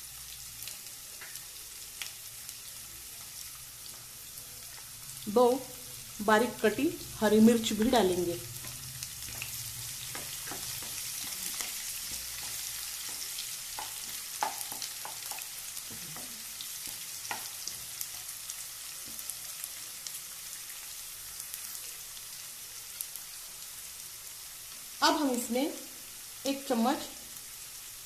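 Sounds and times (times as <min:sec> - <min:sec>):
vegetables sizzling in hot oil: 0:00.0 - 0:28.0
wooden spatula knocking pan: 0:08.6 - 0:17.8.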